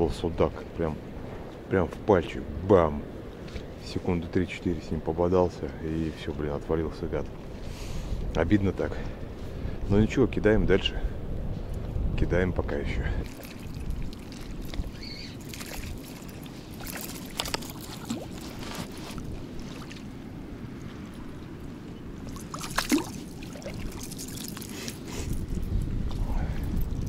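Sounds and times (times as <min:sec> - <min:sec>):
river water lapping: 0:13.0 - 0:27.0
fish splashing: 0:13.2 - 0:20.2, 0:22.2 - 0:25.1.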